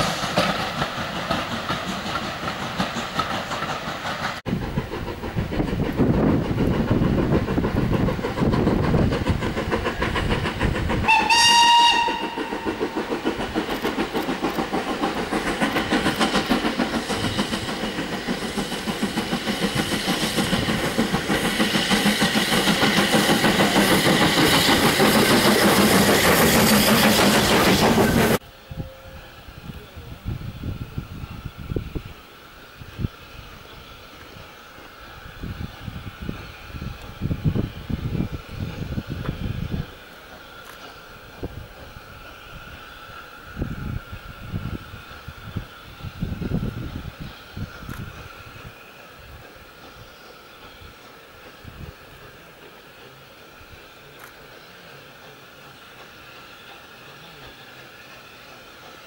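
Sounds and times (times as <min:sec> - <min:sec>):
train wheels clattering over rail joints: 0:00.0 - 0:28.4
steam whistle blast: 0:11.0 - 0:12.9, 0:28.4 - 0:29.6.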